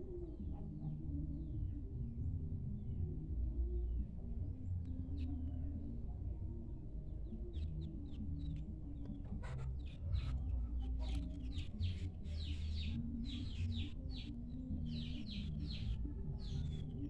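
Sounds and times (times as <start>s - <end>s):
small birds chirping: 7.1s - 17.0s.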